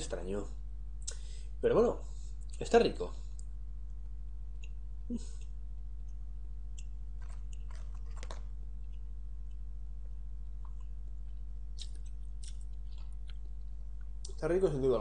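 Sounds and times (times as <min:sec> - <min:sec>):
steady low hum: 0:00.0 - 0:15.0
person chewing: 0:06.7 - 0:14.3.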